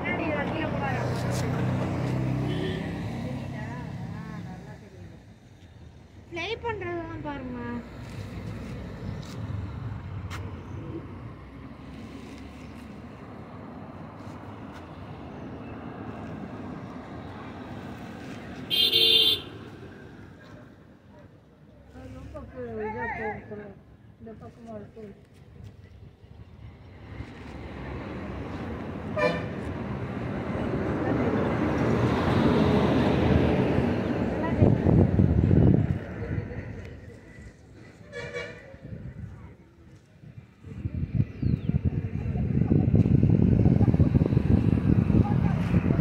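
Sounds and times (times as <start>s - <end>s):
rushing traffic: 0.0s - 46.0s
vehicle horn toot: 2.5s - 2.9s, 18.7s - 19.6s, 29.2s - 29.5s, 38.1s - 38.6s.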